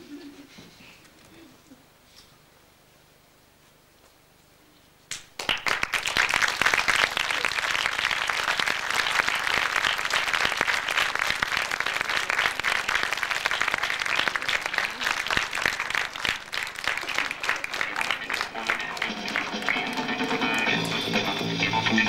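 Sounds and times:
audience applauding: 0:05.1 - 0:22.0.

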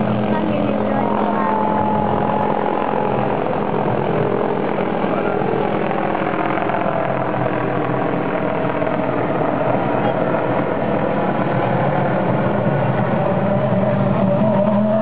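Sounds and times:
steady engine drone: 0:00.0 - 0:15.0.

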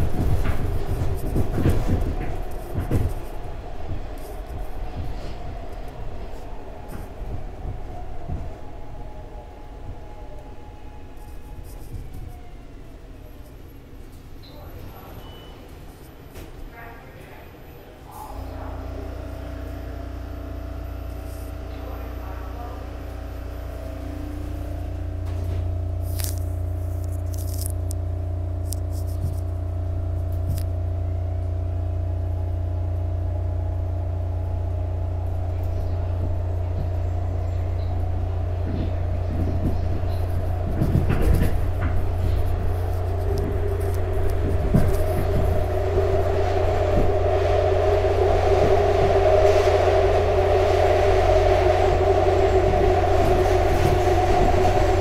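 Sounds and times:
wheel and car-body rattles: 0:00.0 - 0:08.9, 0:34.6 - 0:55.0
train motor hum: 0:00.0 - 0:15.1, 0:18.0 - 0:55.0.

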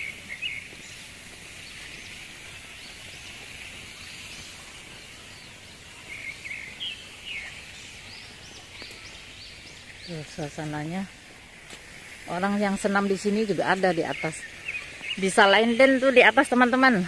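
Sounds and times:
birds chirping: 0:00.0 - 0:17.0
high-pitched outdoor hiss: 0:00.0 - 0:17.0.

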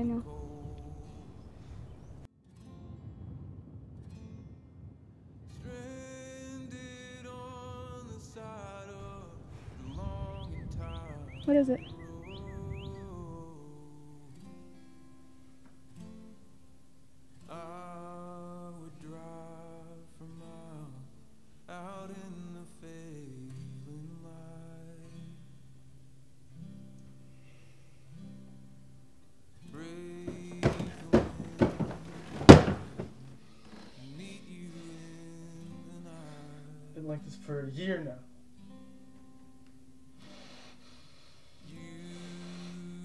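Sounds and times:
person singing slowly: 0:00.0 - 0:01.4, 0:05.8 - 0:14.6, 0:17.4 - 0:25.4, 0:33.8 - 0:37.5, 0:41.6 - 0:43.0
guitar: 0:00.0 - 0:43.0
loud thumps and bangs: 0:30.3 - 0:33.3.

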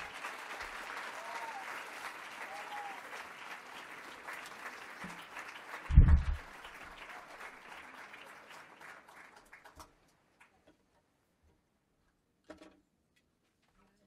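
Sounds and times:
audience applauding: 0:00.0 - 0:10.6
loud low thump: 0:05.9 - 0:06.4.

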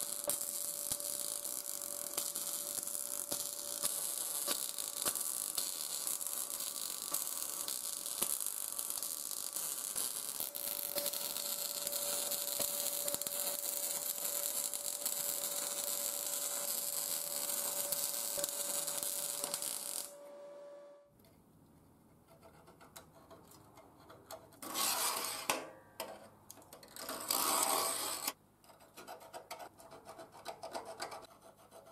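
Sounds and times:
spatter pops: 0:00.0 - 0:20.1
welding arc hissing and crackling: 0:00.0 - 0:20.2.

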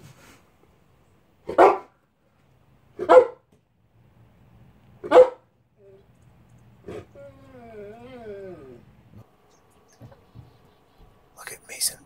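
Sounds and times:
dog barking: 0:01.4 - 0:02.0, 0:03.0 - 0:03.5, 0:05.0 - 0:05.5.

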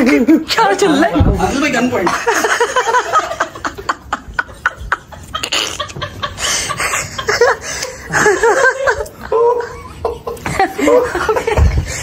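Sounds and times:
people laughing: 0:01.8 - 0:12.0.

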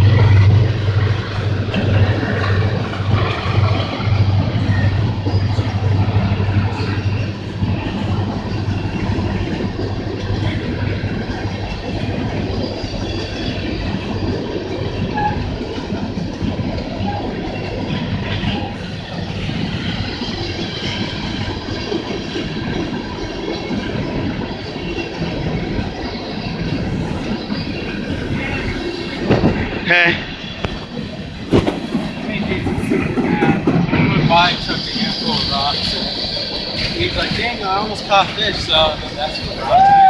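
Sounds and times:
train wheels rumbling and clattering: 0:00.0 - 0:40.0.

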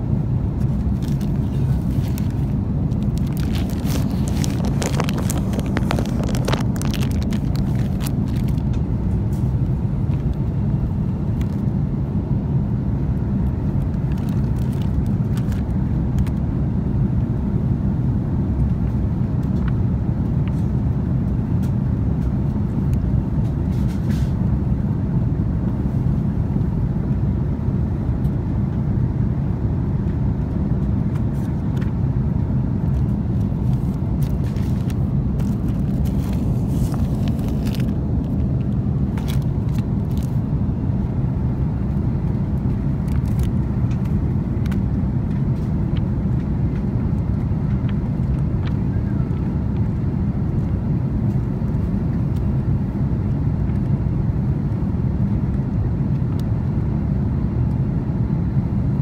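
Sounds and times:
airliner cabin noise: 0:00.0 - 0:59.0
faint clicks and rustles: 0:00.6 - 0:10.4, 0:32.8 - 0:40.4, 0:42.6 - 0:49.9.

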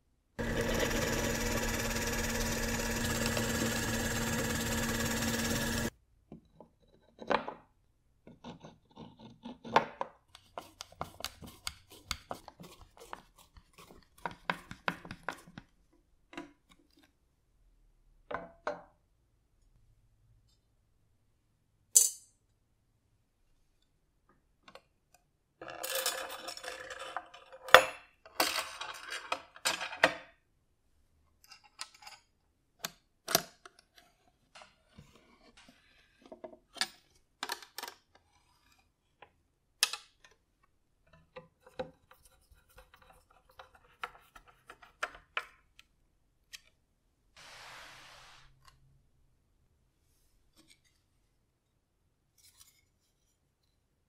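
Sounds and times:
rubbing and scraping: 0:47.4 - 0:48.5.

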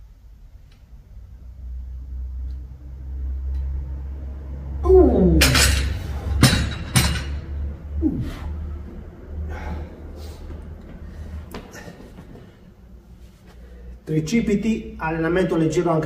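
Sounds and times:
man groaning: 0:04.8 - 0:05.7, 0:08.0 - 0:08.7
dumbbells clanking on rubber floor: 0:05.4 - 0:07.6.

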